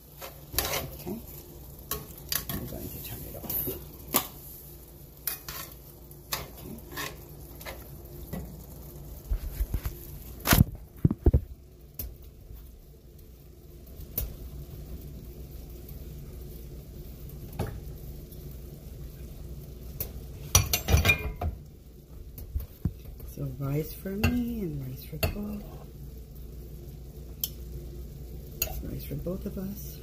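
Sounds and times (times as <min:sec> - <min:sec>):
low steady hum: 0:00.0 - 0:30.0
utensils clattering on dishes: 0:20.6 - 0:21.5
metal tongs knocking on skillet: 0:24.2 - 0:24.5.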